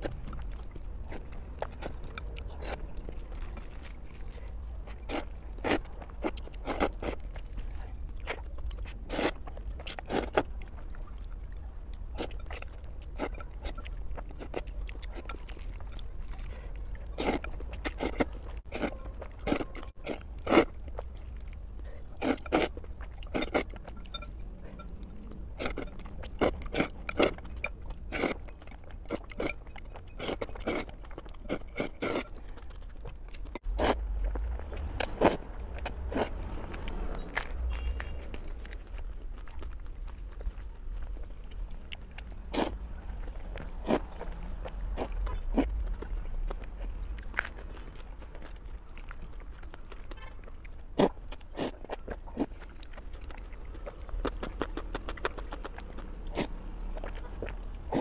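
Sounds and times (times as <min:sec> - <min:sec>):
person chewing: 0:00.0 - 0:58.0
person slurping noodles: 0:22.2 - 0:22.7, 0:33.8 - 0:34.0.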